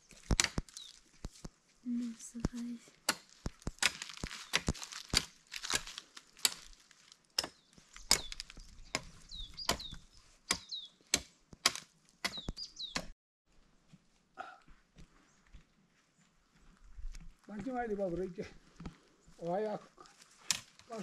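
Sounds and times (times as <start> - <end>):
wood chopping strikes: 0.2 - 0.8, 3.0 - 13.1.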